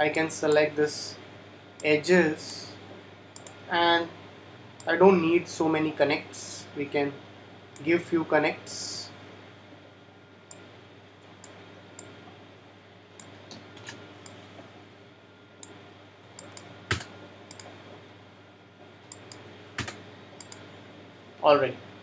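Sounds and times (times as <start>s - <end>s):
computer keyboard and mouse clicks: 3.4s - 3.6s, 16.4s - 17.7s, 19.1s - 20.6s.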